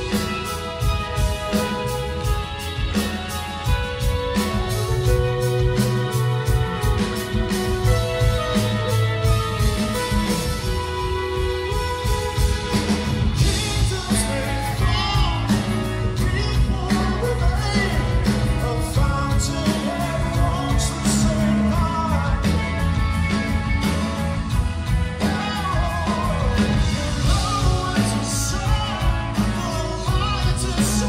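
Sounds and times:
bass: 0:00.0 - 0:31.0
drums: 0:00.0 - 0:31.0
keyboards: 0:00.0 - 0:31.0
man singing lead vocal: 0:11.7 - 0:23.6, 0:24.9 - 0:31.0.

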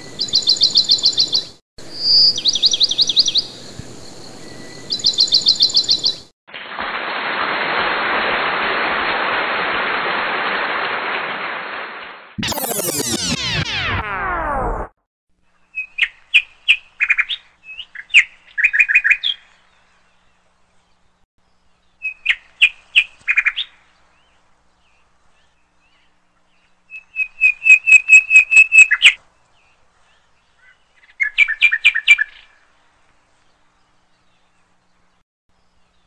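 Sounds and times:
bird chirping in high trills: 0:00.0 - 0:06.3.

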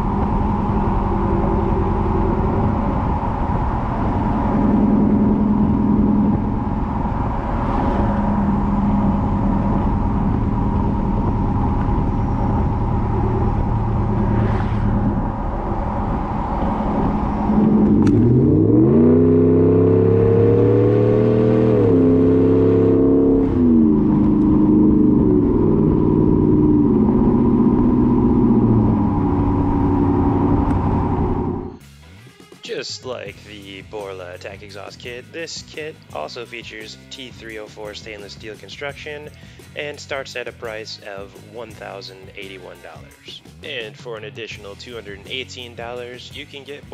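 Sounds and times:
tyre and road noise: 0:00.0 - 0:31.8
truck engine accelerating: 0:00.0 - 0:31.9.

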